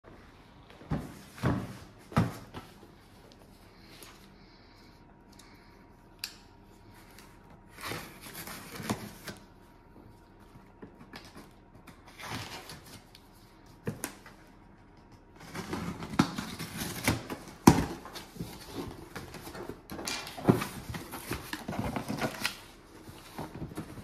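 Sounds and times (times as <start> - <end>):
tape and cardboard rustling: 6.9 - 9.6, 10.2 - 24.0.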